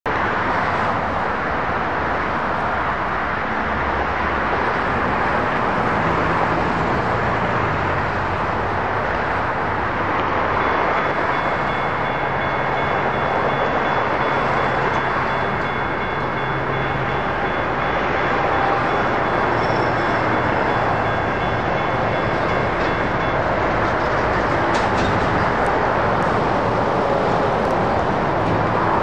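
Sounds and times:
railroad crossing bell ringing: 8.9 - 29.0.

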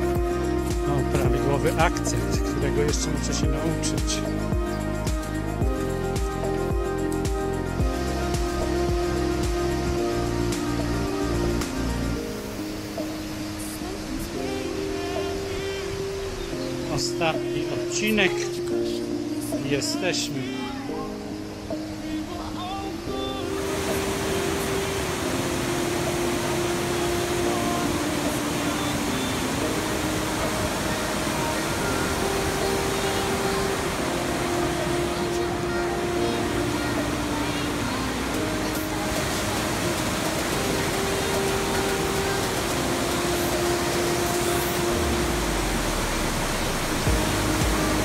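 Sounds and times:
waterfall roaring: 23.4 - 48.0.

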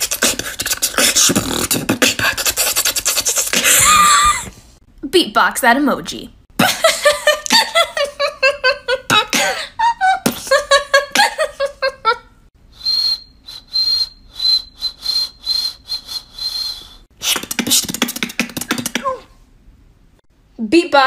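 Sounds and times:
whistled cricket chirps: 12.8 - 17.0
mouth clicks: 12.8 - 19.2.

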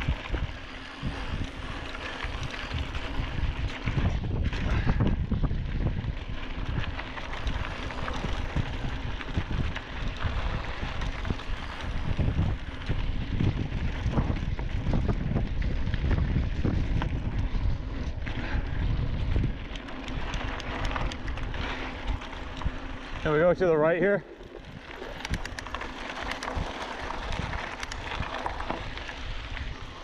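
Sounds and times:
bike knocking and rattling: 0.0 - 30.0
tyres rumbling on gravel: 0.0 - 30.0
wind buffeting microphone: 0.0 - 30.0.

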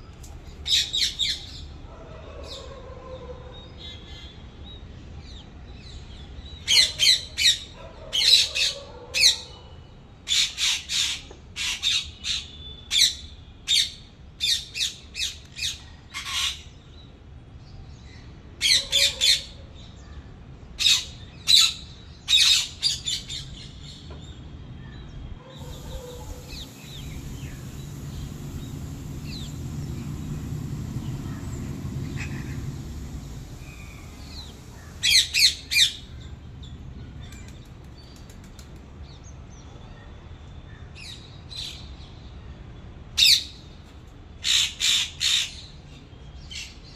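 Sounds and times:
parakeets squawking: 25.6 - 36.1
low rumble: 25.6 - 38.5.

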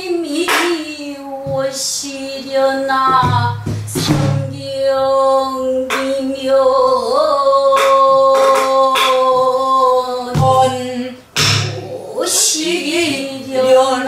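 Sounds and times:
woman singing folk song: 0.0 - 14.0
barrel drum strokes: 11.4 - 11.8.

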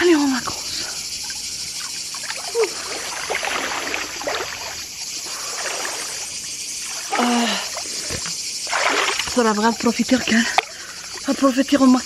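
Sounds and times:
steady hiss: 0.0 - 8.7
pool water lapping: 0.6 - 12.0
swimmer splashing: 1.8 - 11.4.

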